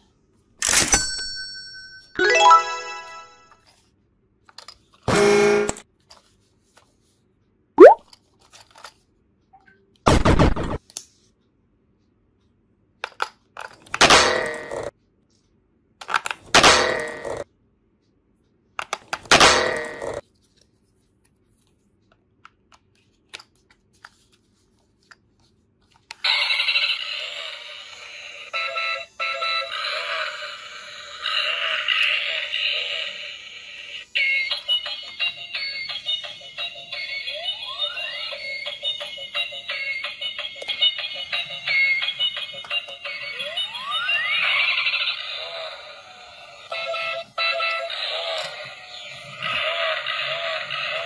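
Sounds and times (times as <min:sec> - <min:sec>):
toy car electronic tune: 0:26.2 - 0:51.0.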